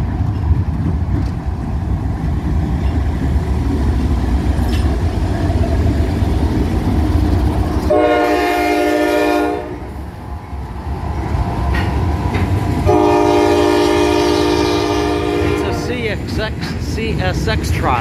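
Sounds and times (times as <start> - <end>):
low rumble of rolling rail cars: 0.0 - 18.0
train horn blasts: 7.9 - 9.9, 12.8 - 16.0.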